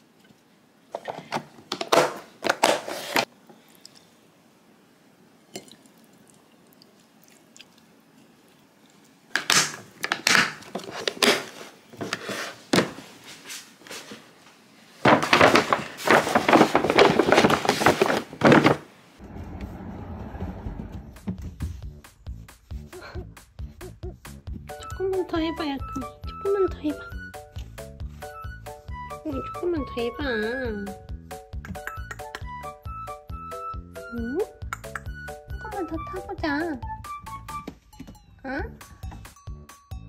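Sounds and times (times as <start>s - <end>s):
paper bag rustling: 10.2s - 18.9s.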